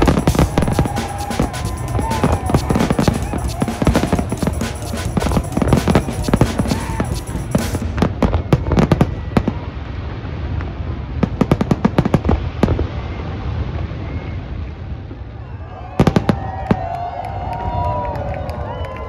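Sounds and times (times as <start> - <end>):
fireworks shell bursts: 0.0 - 8.3
fireworks crackling bangs: 0.0 - 14.1.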